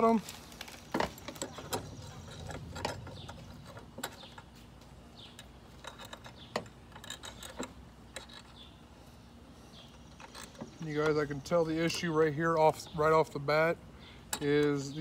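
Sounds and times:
metal clicks of bolts on rack: 14.3 - 14.9.

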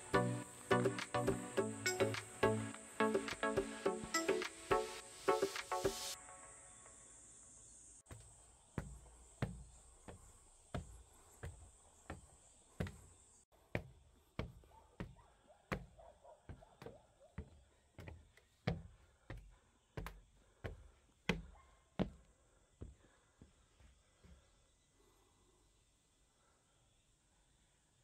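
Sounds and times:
footsteps on a trail: 8.1 - 24.4.

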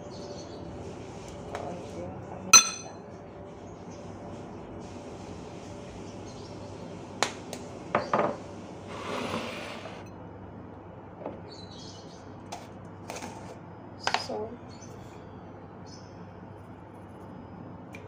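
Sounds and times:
kitchen containers clinking: 2.6 - 3.0
scraping on countertop: 8.0 - 10.1.

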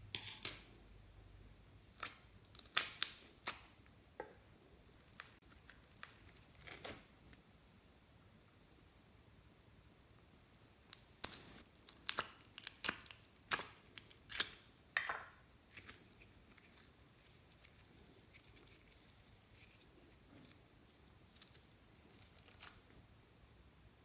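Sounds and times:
modelling clay snapping and crackling: 1.9 - 3.9, 4.8 - 7.1, 10.5 - 22.8.

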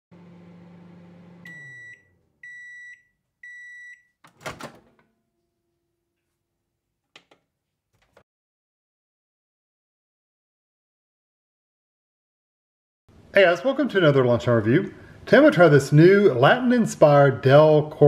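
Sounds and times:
microwave oven humming: 0.1 - 2.7
high microwave beeps: 1.4 - 4.2.

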